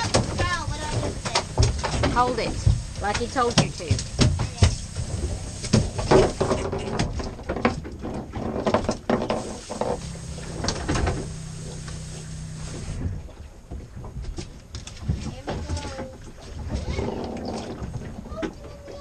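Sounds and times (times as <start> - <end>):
knocks on boat deck: 0.0 - 4.8
low steady hum: 0.0 - 7.6, 9.3 - 18.9.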